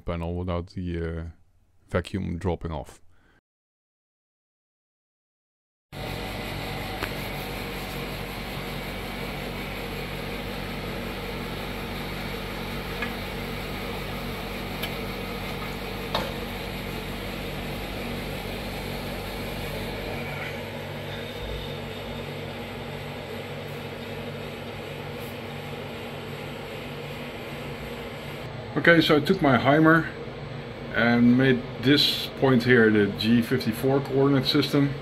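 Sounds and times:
motor hum and hiss: 6.0 - 35.0.

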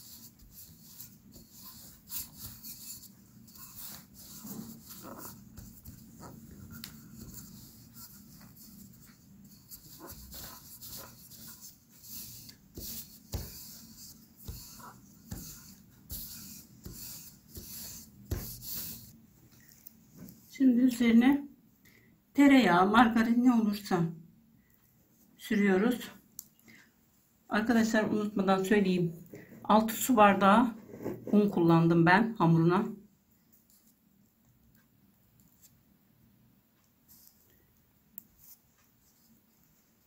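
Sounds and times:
rolling pin rubbing on dough: 0.0 - 19.2.

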